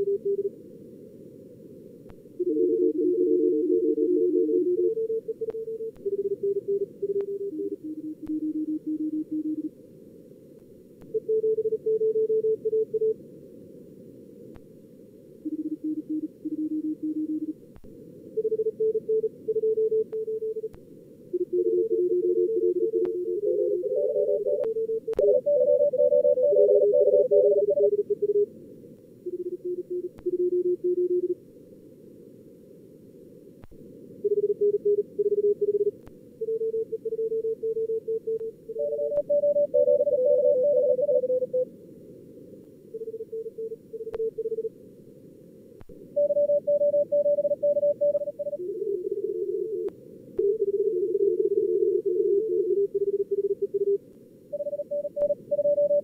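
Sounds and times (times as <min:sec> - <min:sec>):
morse code tones: 0:02.4 - 0:09.7, 0:21.4 - 0:28.5, 0:34.3 - 0:41.6, 0:46.2 - 0:54.0, 0:54.6 - 0:56.0.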